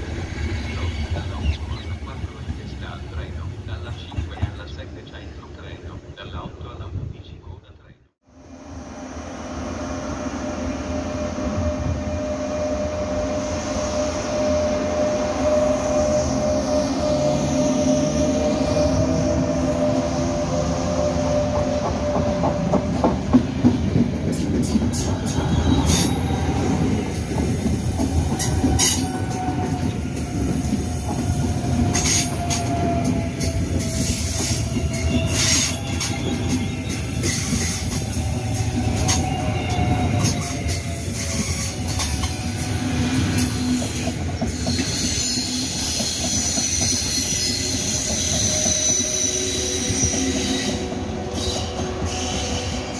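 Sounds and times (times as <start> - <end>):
train rail rumble: 0.0 - 52.9
wheel squeal: 31.8 - 52.9.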